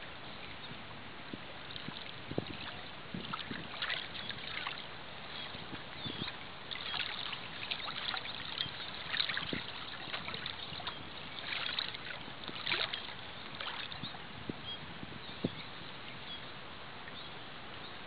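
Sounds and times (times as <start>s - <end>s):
lake waves lapping and splashing: 1.6s - 14.4s.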